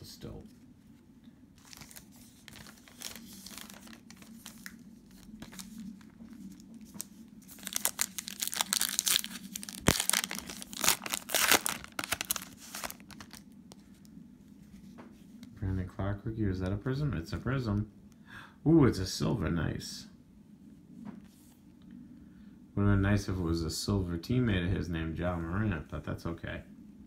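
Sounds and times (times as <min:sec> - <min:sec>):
cellophane wrapper crinkling: 0:01.6 - 0:13.8.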